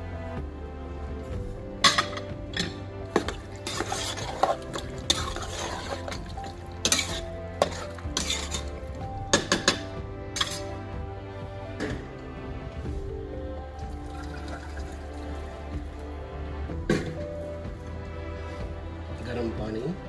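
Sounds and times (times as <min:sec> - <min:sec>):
spoon scraping and clinking pot: 0:01.8 - 0:10.8
metal spoon stirring in pot: 0:01.8 - 0:10.9.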